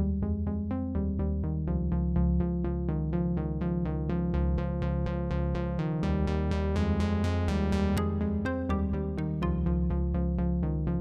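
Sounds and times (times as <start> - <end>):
sustained synth bass: 0.0 - 11.0
synthesizer repeated notes: 6.7 - 10.2.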